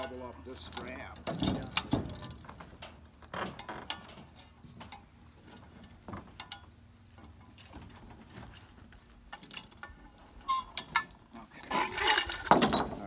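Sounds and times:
insect chirring: 0:00.2 - 0:12.4.

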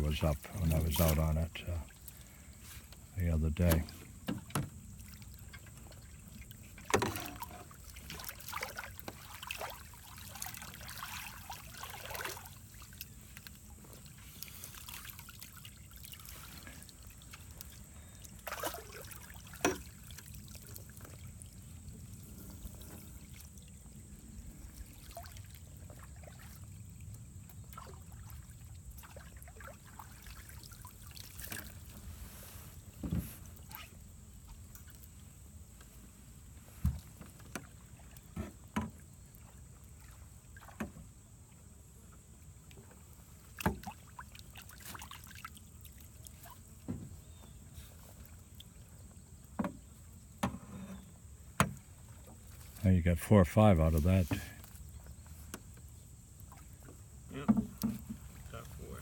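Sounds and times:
water trickling and splashing: 0:00.0 - 0:59.0
rake knocking against boat: 0:57.4 - 0:58.2.

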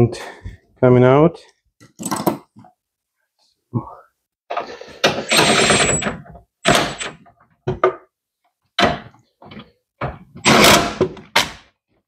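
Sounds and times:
impact driver burst: 0:05.1 - 0:06.0.

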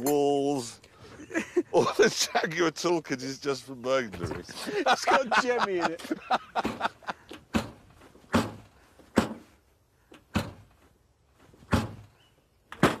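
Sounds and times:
knocks or thuds: 0:06.6 - 0:09.5, 0:10.3 - 0:10.7, 0:11.6 - 0:12.1, 0:12.8 - 0:13.0.

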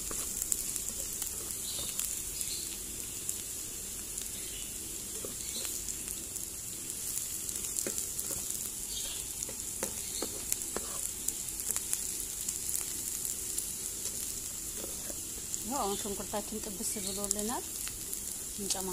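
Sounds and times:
spatula scraping a pan: 0:00.0 - 0:02.0, 0:07.8 - 0:11.1, 0:14.7 - 0:15.5
vegetables sizzling in oil: 0:00.0 - 0:18.9.

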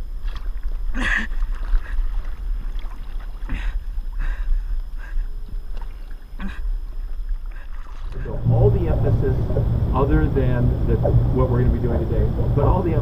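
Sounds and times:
seawater sloshing and splashing: 0:00.0 - 0:13.0
wind buffeting the microphone: 0:08.2 - 0:13.0.

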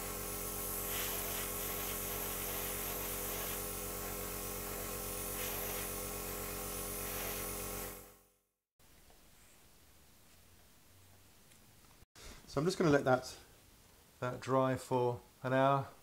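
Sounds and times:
airbrush hissing spray: 0:00.0 - 0:08.2
compressor buzzing hum: 0:00.0 - 0:08.3.

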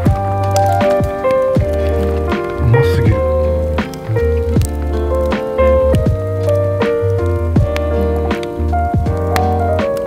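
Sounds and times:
sustained melody notes: 0:02.1 - 0:04.5
held bass line: 0:02.2 - 0:04.7
steady drum beat: 0:02.6 - 0:03.4.

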